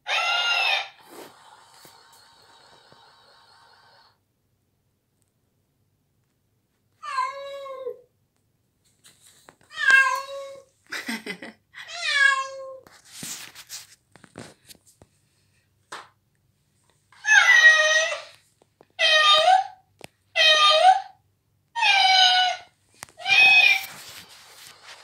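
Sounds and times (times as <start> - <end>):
cat meowing: 0.0 - 1.0, 9.7 - 10.7, 11.8 - 12.9, 21.8 - 24.0
scuffling noises: 12.8 - 15.1, 22.9 - 25.0.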